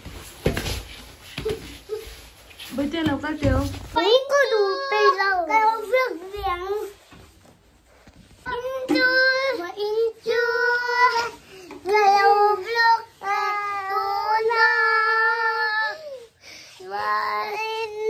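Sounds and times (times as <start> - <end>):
child singing: 4.0 - 7.0, 8.4 - 18.0.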